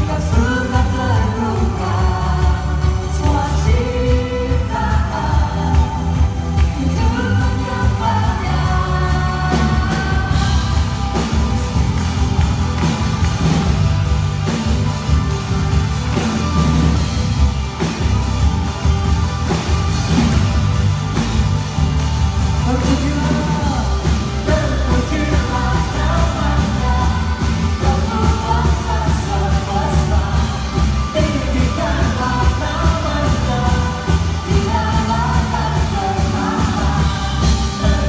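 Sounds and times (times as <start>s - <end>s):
singers singing: 0.0s - 18.2s, 22.4s - 38.0s
worship band playing rock: 0.0s - 38.0s.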